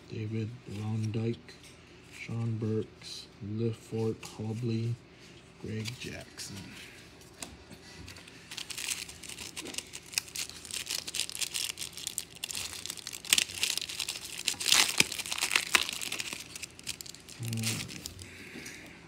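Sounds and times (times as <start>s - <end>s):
plastic wrapper crinkling and tearing: 8.2s - 18.4s.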